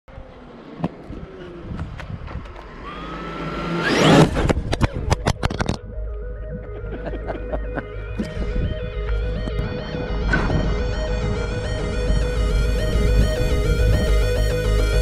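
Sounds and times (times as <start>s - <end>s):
tyres rushing on asphalt: 0.1s - 5.3s
electric motor whining: 2.5s - 4.8s, 8.0s - 15.0s
synth music: 5.6s - 15.0s.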